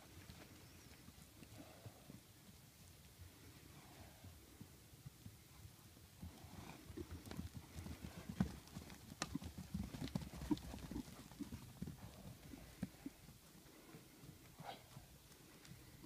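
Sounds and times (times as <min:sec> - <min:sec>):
horse hooves cantering on ground: 0:00.0 - 0:16.0.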